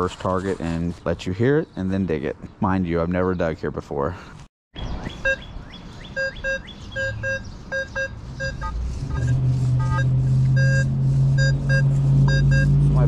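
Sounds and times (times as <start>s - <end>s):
metal detector beeps: 5.1s - 5.5s, 6.1s - 12.8s
low engine drone: 7.0s - 13.0s.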